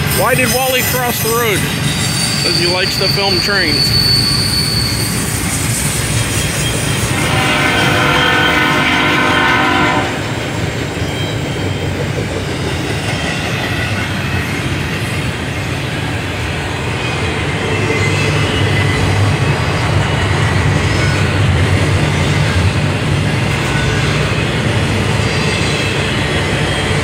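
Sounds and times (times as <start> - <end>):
train wheels rumbling on rail: 0.0 - 27.0
train horn: 7.1 - 10.4.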